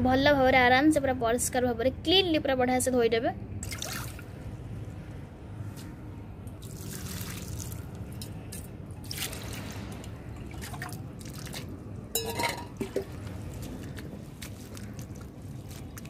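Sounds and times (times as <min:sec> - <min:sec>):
water dripping and trickling: 0:05.7 - 0:16.0
metal vessels knocking: 0:12.1 - 0:13.2
wet leaves moved by hand: 0:12.8 - 0:16.0.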